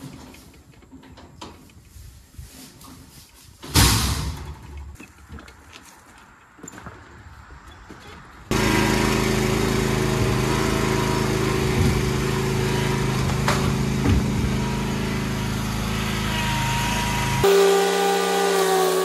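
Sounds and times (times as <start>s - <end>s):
mower engine running: 8.5s - 19.0s.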